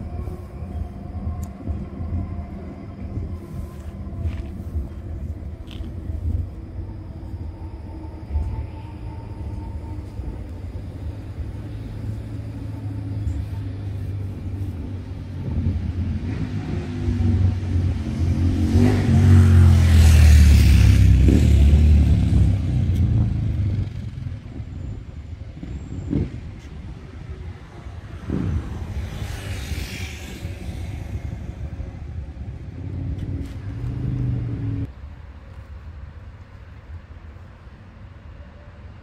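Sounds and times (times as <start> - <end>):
tram rumbling past: 0.0 - 39.0
tram whine: 0.0 - 39.0.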